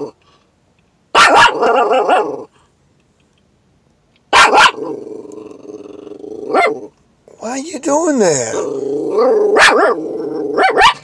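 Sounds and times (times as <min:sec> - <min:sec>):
small dog barking: 0:01.1 - 0:02.5, 0:04.3 - 0:04.9, 0:06.5 - 0:06.9, 0:09.2 - 0:11.0.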